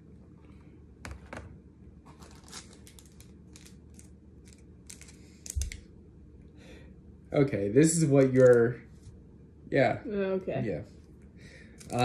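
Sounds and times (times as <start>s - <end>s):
packaging crinkling and tearing: 2.1s - 5.8s, 11.8s - 12.0s.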